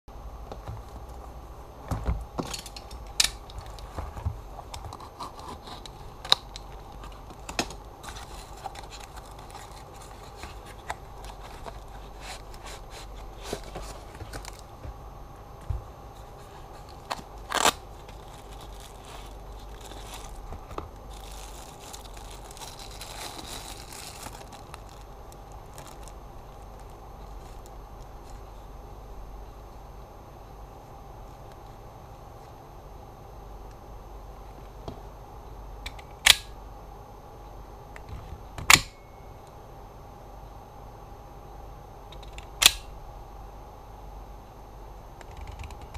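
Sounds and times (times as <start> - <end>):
faint steady hum: 0.1 - 45.9
padded mailer tearing and crinkling: 4.8 - 14.7, 16.3 - 27.7.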